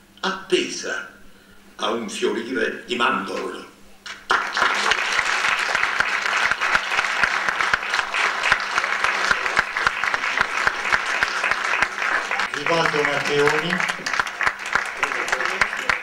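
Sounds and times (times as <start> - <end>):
audience applause: 4.1 - 16.0.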